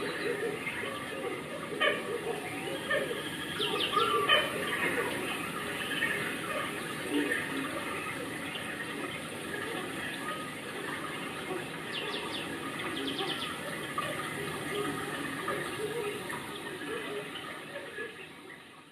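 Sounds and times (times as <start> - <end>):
faint voices: 0.0 - 18.9
running water rushing: 0.0 - 18.9.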